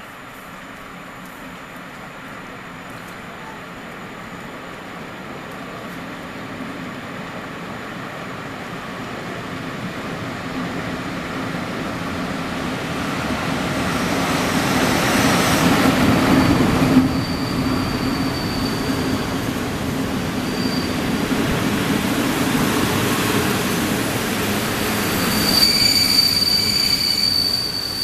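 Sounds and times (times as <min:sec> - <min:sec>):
electric locomotive passing: 0:00.0 - 0:28.0
coaches rolling with high squeal: 0:16.2 - 0:21.7, 0:24.8 - 0:28.0.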